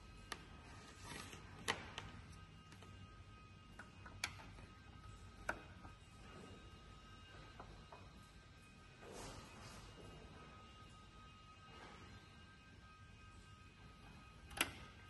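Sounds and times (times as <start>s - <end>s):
faint background music: 0.0s - 15.0s.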